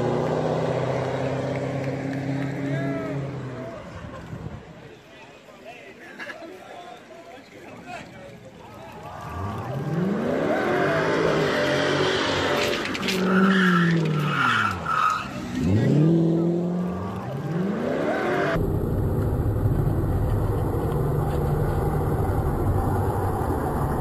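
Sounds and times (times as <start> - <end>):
tire squeal: 9.0 - 16.0
car engine revving: 9.1 - 24.0.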